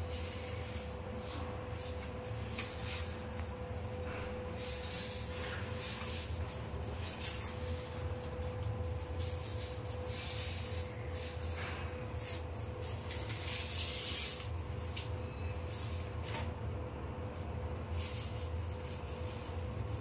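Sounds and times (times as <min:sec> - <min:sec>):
steady low hum: 0:00.0 - 0:20.0
velcro strip rubbed on frame: 0:04.6 - 0:14.6.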